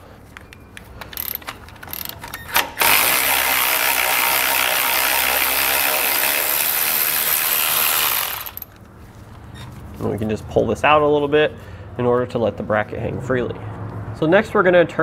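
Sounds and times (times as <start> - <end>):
light ratchet clicks: 0.4 - 8.8
electric ratchet motor running: 1.2 - 8.7.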